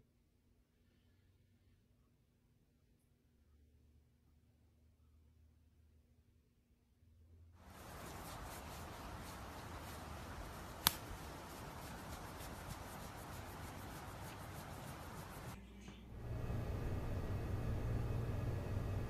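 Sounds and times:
hand rubbing fur: 0:07.6 - 0:15.6
sharp click: 0:10.8 - 0:11.4.

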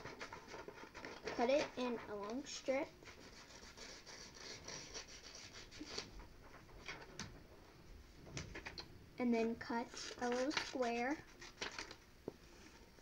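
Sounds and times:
paper rubbing and rustling: 0:00.0 - 0:07.2, 0:09.8 - 0:12.0.

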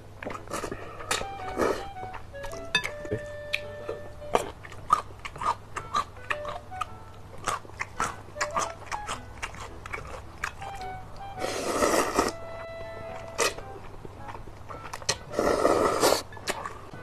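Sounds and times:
wet chewing with lip smacks: 0:03.6 - 0:11.3
slurping noodles: 0:11.4 - 0:12.4, 0:15.3 - 0:16.3.

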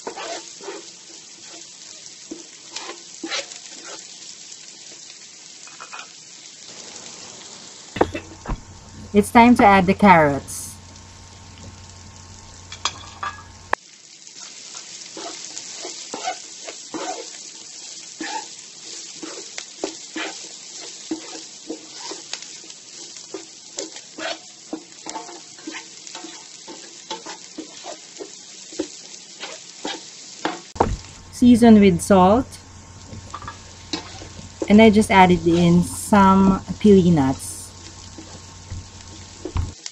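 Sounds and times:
vegetables sizzling in a pan: 0:00.0 - 0:39.9
spatula scraping and tapping pan: 0:12.7 - 0:13.6, 0:23.2 - 0:31.1, 0:33.1 - 0:34.7.

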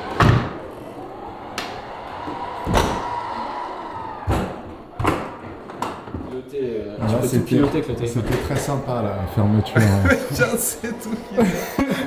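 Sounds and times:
doors shutting: 0:00.0 - 0:06.4, 0:07.5 - 0:09.0.

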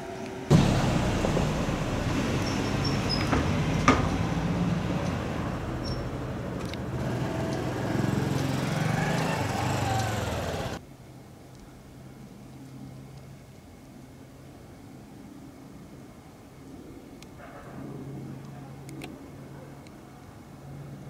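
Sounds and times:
vehicle engine humming: 0:00.0 - 0:10.8.

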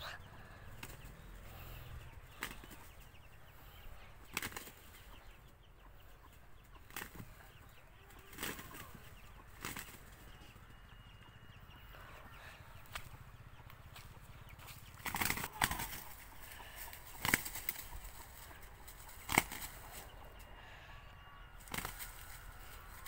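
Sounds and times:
roosters wings flapping: 0:02.4 - 0:02.9, 0:04.3 - 0:04.8, 0:08.3 - 0:10.2, 0:14.8 - 0:20.1, 0:21.6 - 0:23.0.

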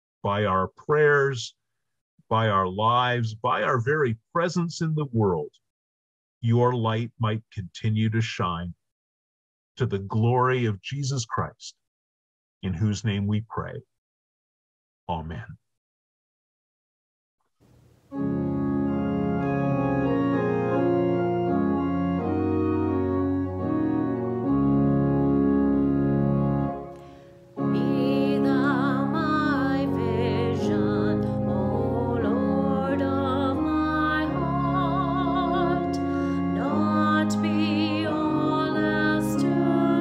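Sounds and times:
church organ playing hymn: 0:18.1 - 0:40.0
woman singing: 0:27.6 - 0:40.0.

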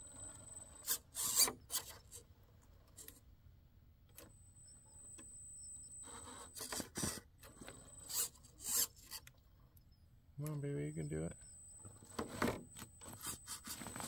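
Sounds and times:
electric motor whine: 0:10.9 - 0:14.0.

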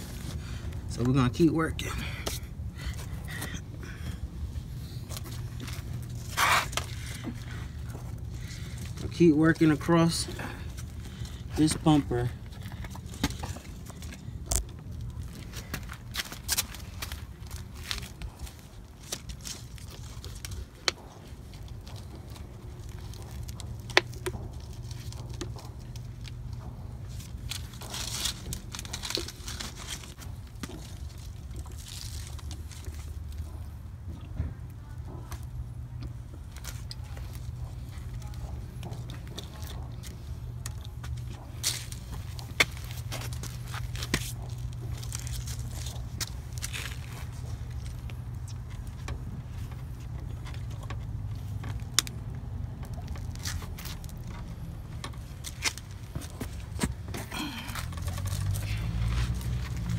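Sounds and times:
steady low hum: 0:00.0 - 0:59.9
steady low rumble: 0:00.0 - 0:59.9
rubber strip scrapes and crackles: 0:05.2 - 0:07.3.

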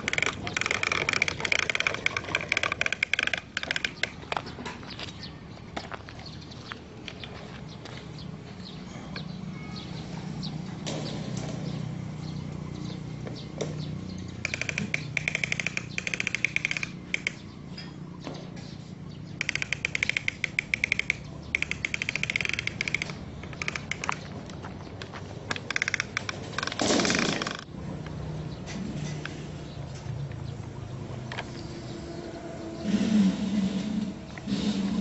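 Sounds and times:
plastic toy wheels rattling: 0:00.0 - 0:04.5, 0:14.4 - 0:17.4, 0:19.4 - 0:24.3, 0:25.5 - 0:27.7
toy scraping: 0:00.0 - 0:04.5, 0:14.4 - 0:17.4, 0:19.4 - 0:24.3, 0:25.5 - 0:27.7.

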